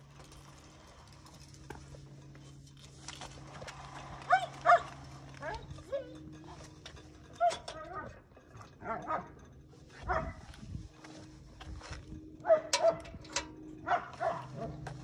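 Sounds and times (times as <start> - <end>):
dog barking: 4.3 - 5.6, 8.8 - 9.3, 10.0 - 10.4, 12.4 - 13.0, 13.8 - 14.8.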